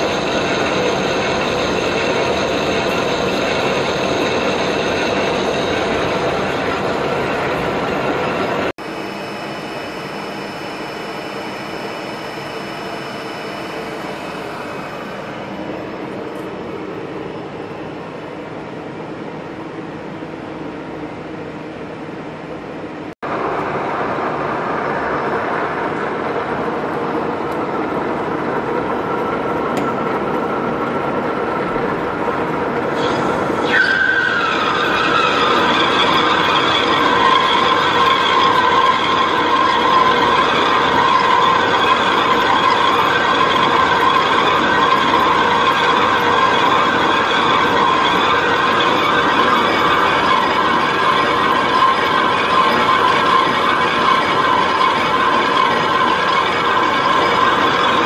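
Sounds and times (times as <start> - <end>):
lathe cutting metal bar: 0.0 - 16.0, 27.2 - 58.0
faint high whine: 0.0 - 19.3.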